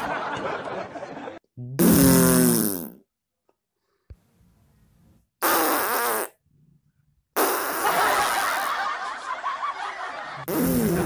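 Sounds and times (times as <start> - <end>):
fart sound effects: 1.6 - 3.0, 5.4 - 6.4, 7.4 - 8.7, 10.4 - 11.0.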